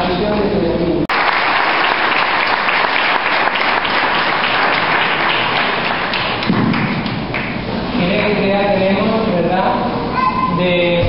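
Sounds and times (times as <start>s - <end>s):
crowd applauding: 1.1s - 8.4s.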